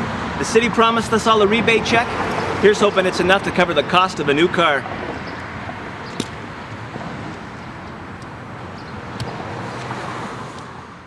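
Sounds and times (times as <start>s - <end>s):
low traffic rumble: 0.0s - 11.0s
sharp click: 6.1s - 6.4s.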